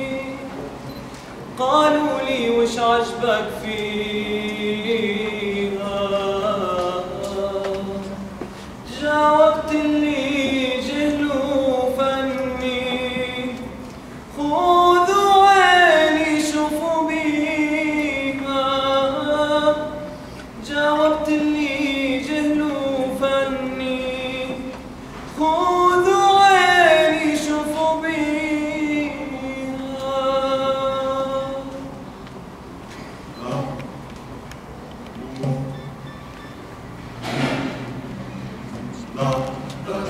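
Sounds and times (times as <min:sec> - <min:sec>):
man singing ornamented phrases: 0:01.6 - 0:08.3, 0:08.9 - 0:24.8, 0:25.4 - 0:32.0, 0:33.4 - 0:34.1.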